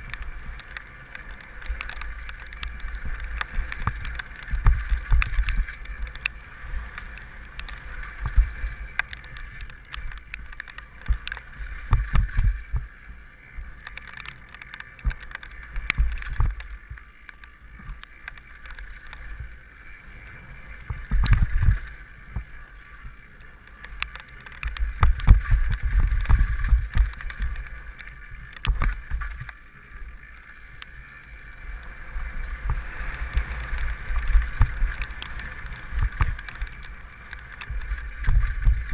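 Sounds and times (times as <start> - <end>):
wind buffeting microphone: 0.0 - 13.0, 20.8 - 22.5, 24.6 - 29.6, 31.7 - 38.9
bike rattling over stones: 0.0 - 38.9.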